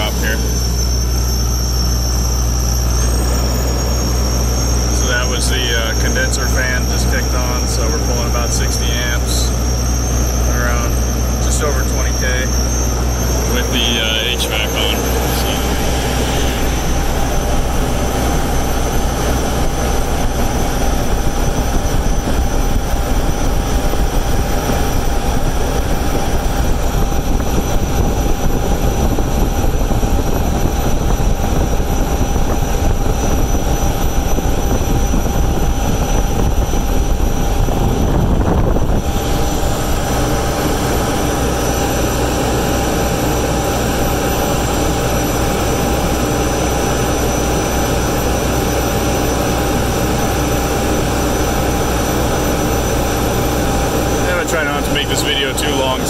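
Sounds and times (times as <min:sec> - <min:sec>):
loud machine drone: 0:00.0 - 0:56.0
air rushing from duct: 0:14.8 - 0:33.9.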